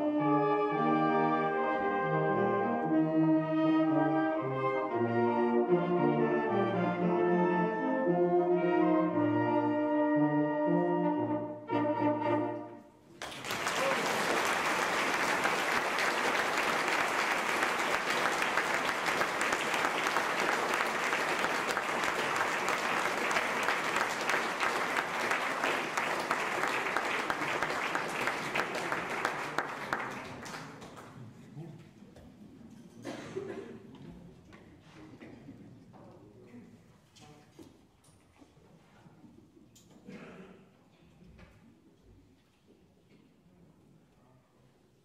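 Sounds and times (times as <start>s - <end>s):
brass band playing: 0.0s - 13.0s
audience applause: 13.2s - 31.2s.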